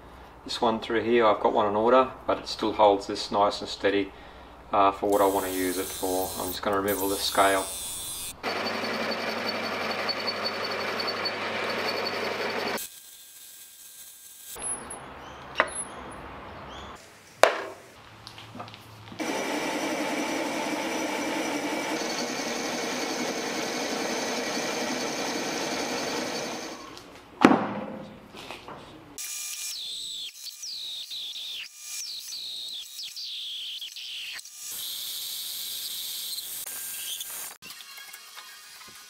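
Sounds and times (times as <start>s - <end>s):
metal lathe machining: 5.5s - 12.8s, 19.2s - 26.9s.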